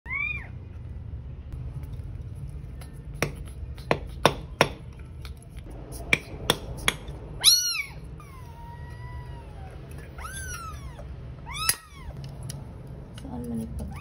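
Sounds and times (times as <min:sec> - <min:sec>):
kitten meowing: 0:00.1 - 0:00.5, 0:07.4 - 0:12.2.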